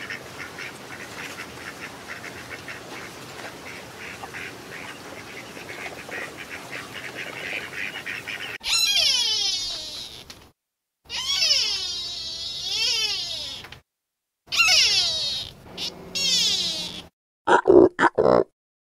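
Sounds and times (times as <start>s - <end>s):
ducks whistling: 3.7s - 9.8s, 14.5s - 17.0s
high sliding bird call: 8.6s - 10.2s, 14.5s - 17.1s.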